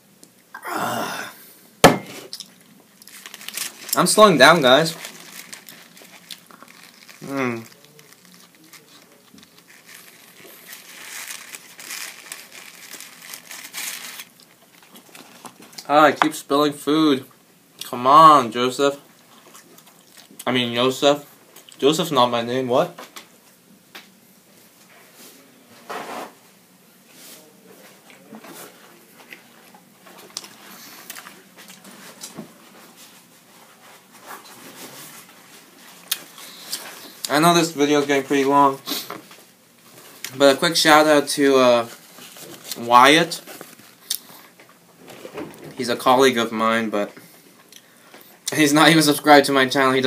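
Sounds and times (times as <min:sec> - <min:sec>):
foil wrapper crinkling: 0:02.4 - 0:15.8, 0:39.9 - 0:45.3.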